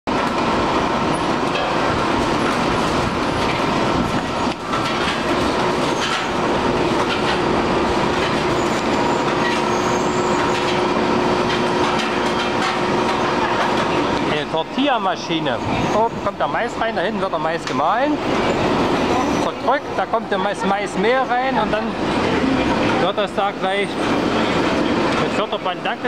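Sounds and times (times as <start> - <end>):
machine whine: 0.1 - 26.0
machine clattering: 1.4 - 9.7.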